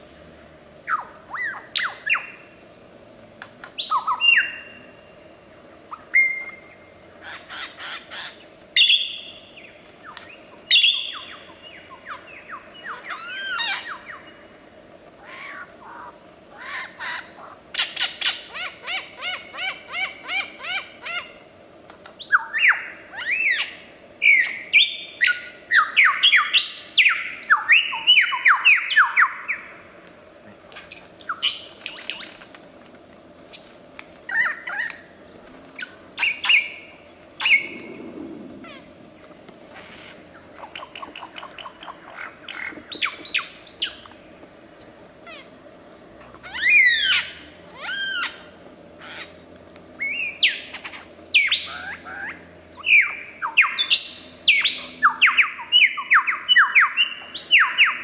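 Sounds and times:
lyrebird singing: 5.9s - 14.5s, 22.1s - 29.7s, 30.5s - 33.7s, 35.7s - 45.6s, 46.4s - 58.0s.

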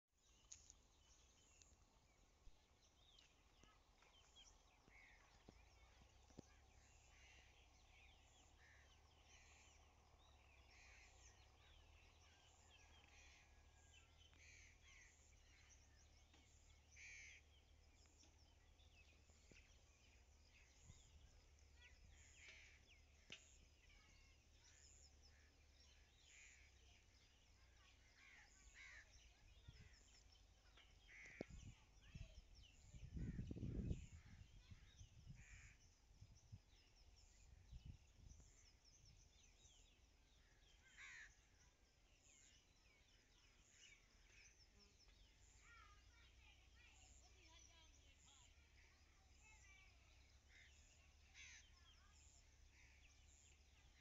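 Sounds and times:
birds chirping: 0.0s - 54.0s
low steady rumble: 0.2s - 41.2s.

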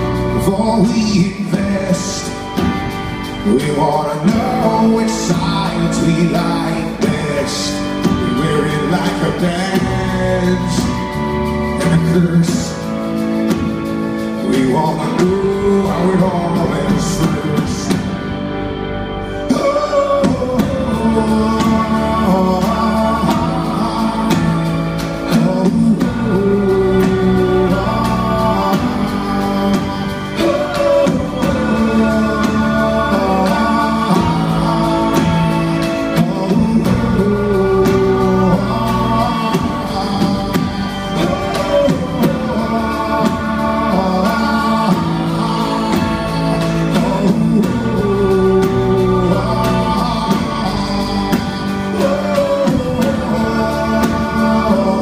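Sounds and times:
rock band playing live: 0.0s - 55.0s
voices singing a refrain: 19.5s - 55.0s.

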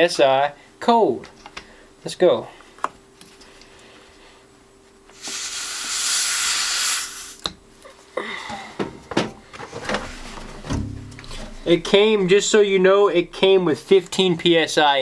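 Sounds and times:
air hissing at tyre valve: 5.1s - 7.5s
air hose click: 5.1s - 7.6s.

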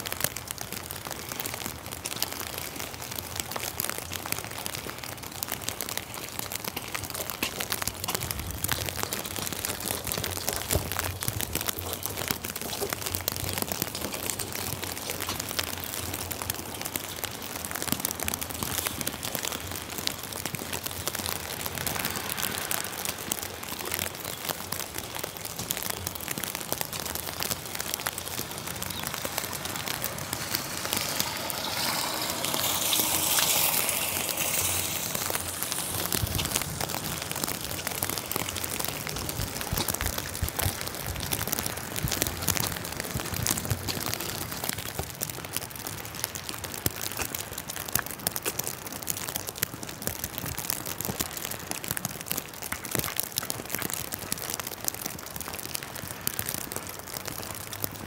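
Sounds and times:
rain on wet pavement: 0.0s - 58.0s.

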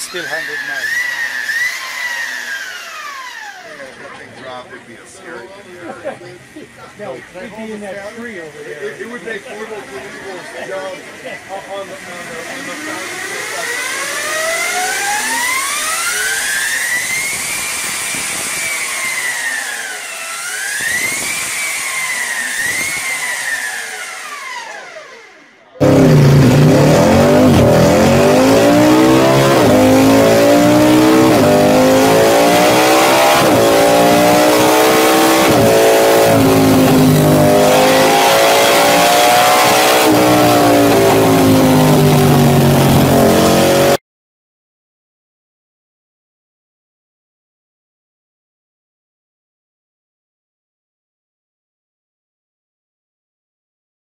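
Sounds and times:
superbike engine revving: 0.0s - 4.3s, 9.0s - 44.0s
motorcycle engine running hard: 9.0s - 44.0s.

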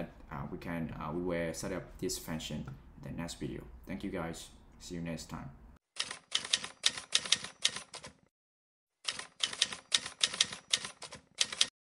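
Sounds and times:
rapid keyboard key clicks: 9.1s - 11.7s.

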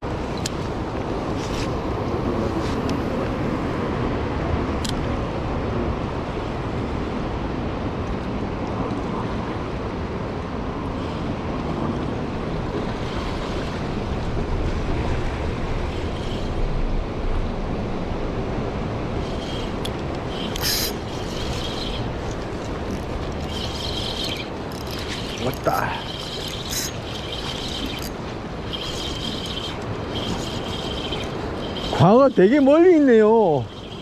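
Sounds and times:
surf washing on beach: 0.0s - 34.0s.

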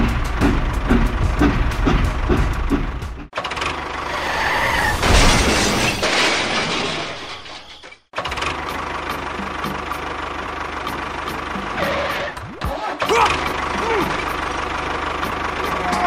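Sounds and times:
engine sound effect: 8.2s - 16.0s.

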